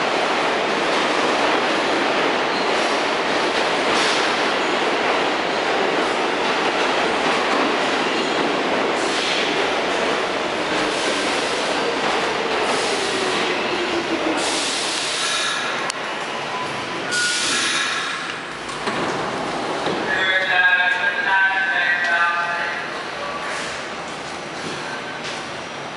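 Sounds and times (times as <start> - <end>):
train brakes squealing: 16.5 - 18.3.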